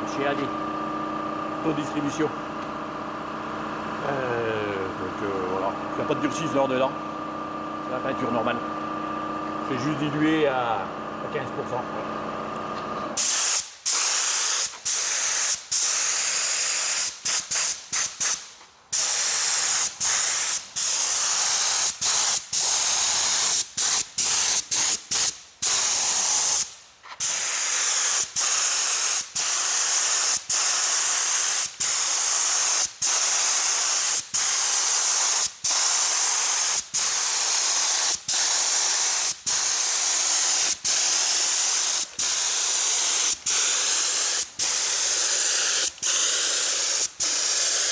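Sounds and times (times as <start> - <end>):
paint spray gun hissing: 13.2 - 47.9.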